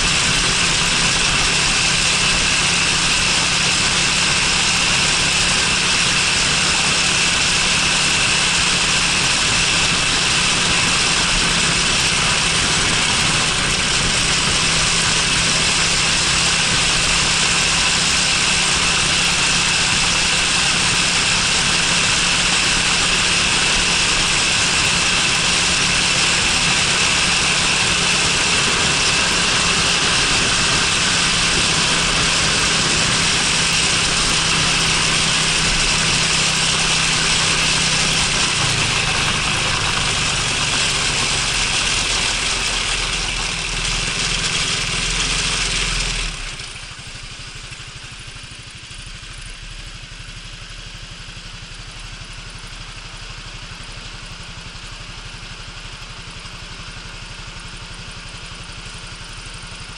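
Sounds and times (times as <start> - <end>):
steady rushing noise: 0.0 - 47.8
scooter engine hum: 0.0 - 59.9.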